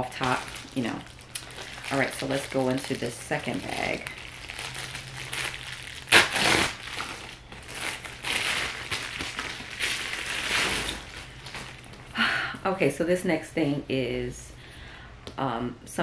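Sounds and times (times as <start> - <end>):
plastic bag ripping: 0.0 - 12.0
plastic bag crinkling: 0.0 - 12.1.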